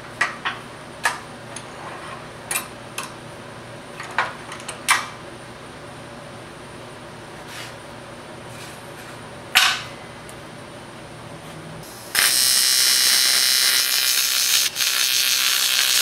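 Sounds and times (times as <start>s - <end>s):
welding arc buzzing hiss: 11.8s - 16.0s.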